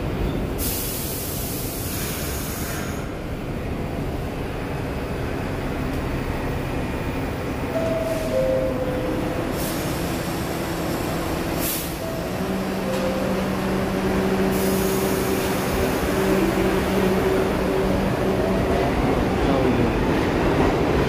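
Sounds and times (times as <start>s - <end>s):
train air brakes hissing: 0.5s - 3.2s, 9.4s - 10.5s, 11.5s - 12.3s, 14.3s - 16.3s
train motor hum: 3.4s - 21.0s.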